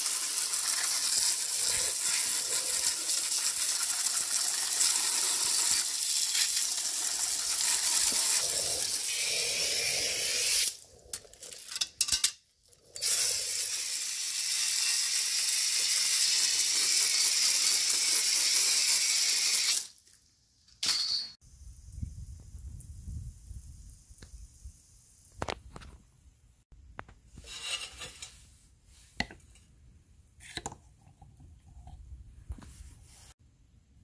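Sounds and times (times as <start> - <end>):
hose nozzle spraying water on plastic: 0.0 - 10.8.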